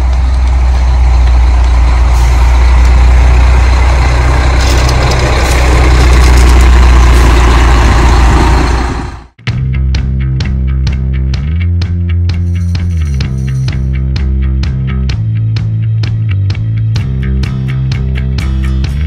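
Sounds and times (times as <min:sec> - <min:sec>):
motorhome engine idling: 0:00.0 - 0:09.4
music: 0:09.4 - 0:19.0.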